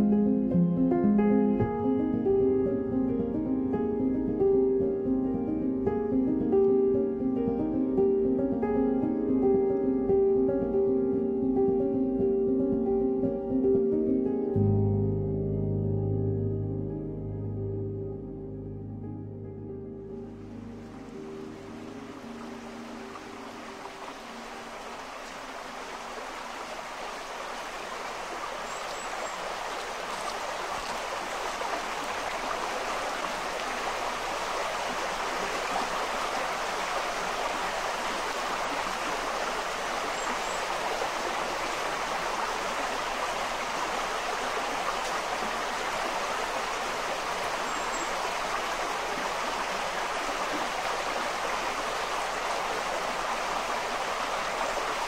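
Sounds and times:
brook rushing over stones: 22.4 - 55.0.

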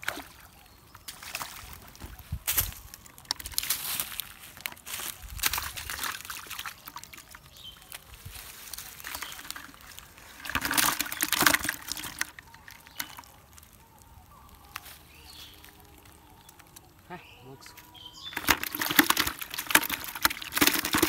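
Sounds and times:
fish splashing in bucket: 0.0 - 13.8, 18.1 - 21.0
clicks and rustling: 17.7 - 21.0.

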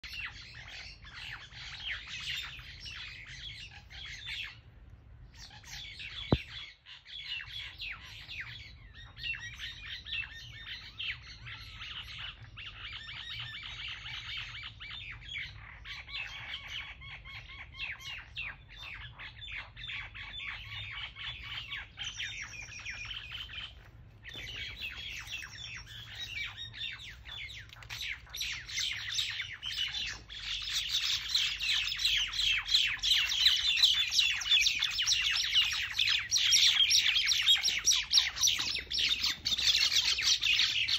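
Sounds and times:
birds chirping and squawking: 0.0 - 40.9.

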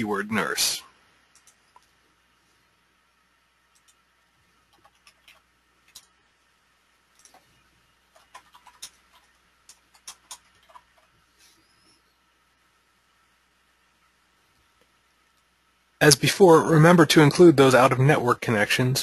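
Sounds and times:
computer mouse clicks: 1.3 - 2.0, 3.7 - 4.0, 4.7 - 6.2, 7.1 - 11.2
keyboard typing: 1.3 - 2.0, 3.7 - 6.2, 7.1 - 11.2.

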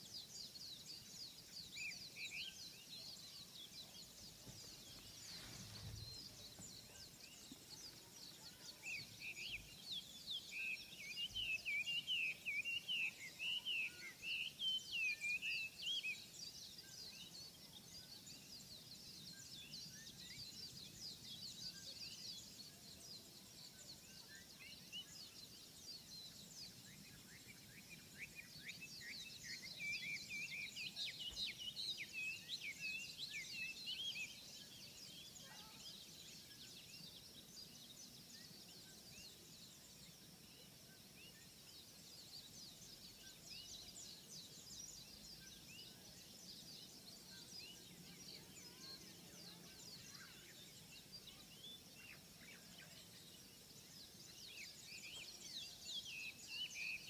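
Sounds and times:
loud bird warbling song: 0.0 - 57.0
songbirds chirping: 0.0 - 57.0.

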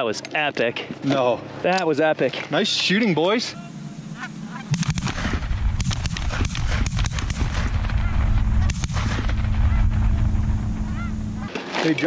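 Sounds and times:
steady low rumble: 2.9 - 11.5
goose honks: 3.6 - 4.8, 10.8 - 11.5.

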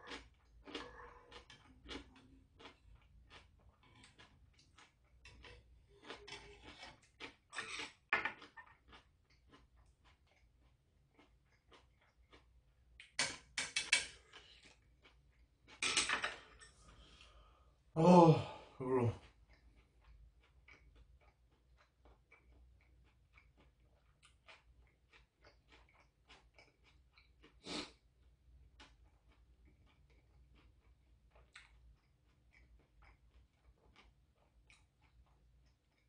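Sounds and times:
faint chewing: 0.0 - 17.6, 18.8 - 36.0
short breath: 16.9 - 18.8
person sighing: 18.0 - 19.2
slurping soup: 27.6 - 28.0.

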